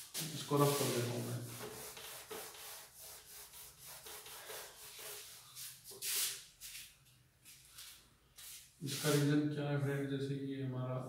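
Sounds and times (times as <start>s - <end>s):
duster rubbing on whiteboard: 0.0s - 6.9s, 8.4s - 9.3s.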